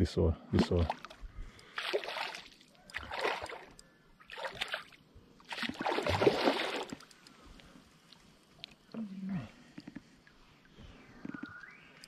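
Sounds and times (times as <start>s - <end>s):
water splashing: 0.5s - 7.2s.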